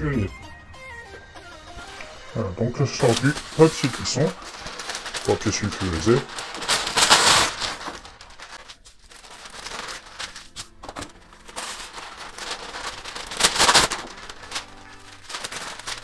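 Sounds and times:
parchment paper crackling: 1.7s - 16.0s.

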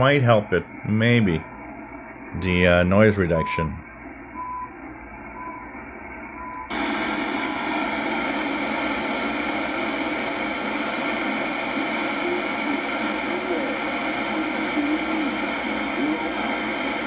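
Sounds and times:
radio static and hum: 0.0s - 17.0s
short time signal beeps: 6.4s - 6.7s.

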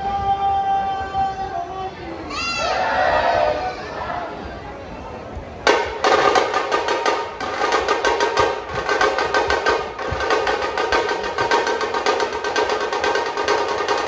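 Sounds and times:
deep drum beats: 5.6s - 14.0s
fast snare drum strokes: 5.7s - 14.0s.

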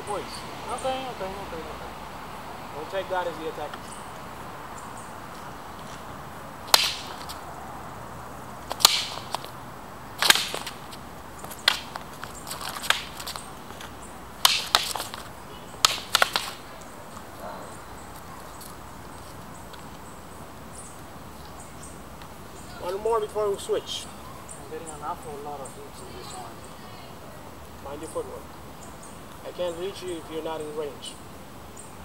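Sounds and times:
practice rapiers clacking: 6.7s - 7.4s, 8.6s - 9.6s, 10.2s - 17.3s.

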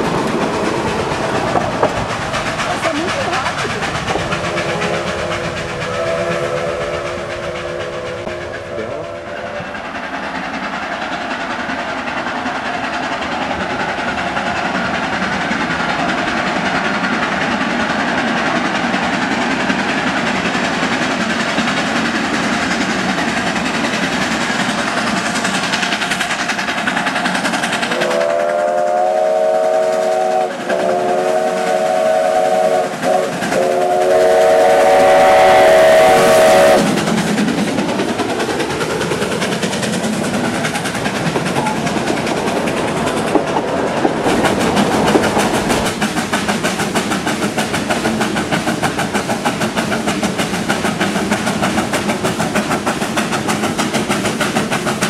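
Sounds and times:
steam locomotive exhaust rush: 0.0s - 55.0s
steam whistle chord: 4.4s - 9.8s, 27.9s - 36.9s.

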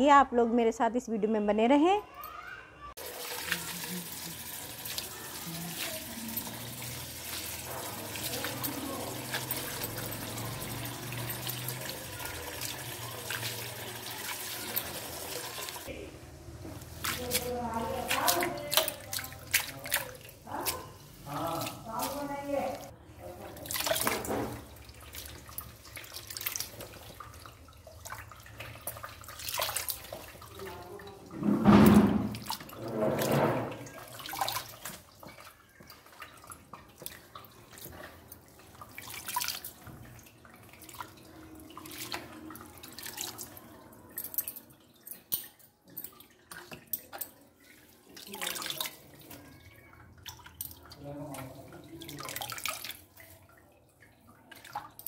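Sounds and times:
water splashing in a plastic tub: 3.0s - 16.0s, 16.6s - 55.0s
tap pouring water: 23.5s - 30.6s, 31.2s - 43.6s.

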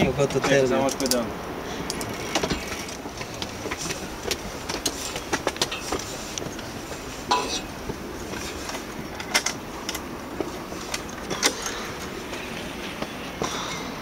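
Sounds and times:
rustle of movement: 0.0s - 14.0s
footsteps on concrete stairs: 2.4s - 8.9s.

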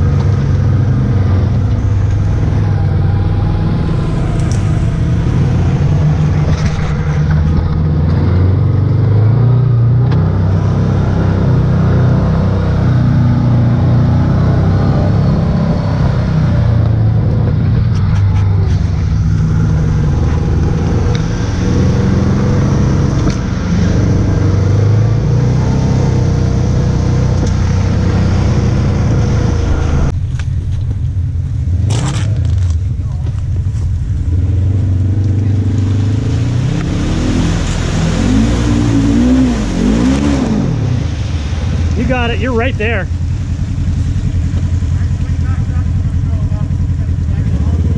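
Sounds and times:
utility vehicle engine running: 0.0s - 47.9s.

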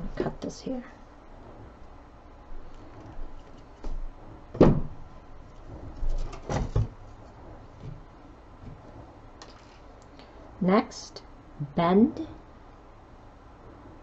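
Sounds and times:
louder thuds: 3.8s - 7.0s.

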